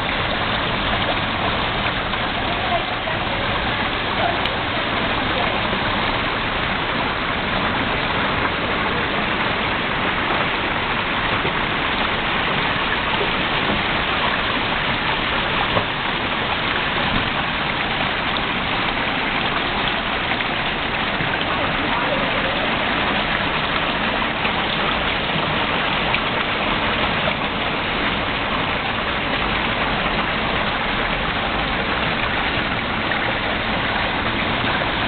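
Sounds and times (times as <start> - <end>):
waterfall splashing over rocks: 0.0 - 35.0.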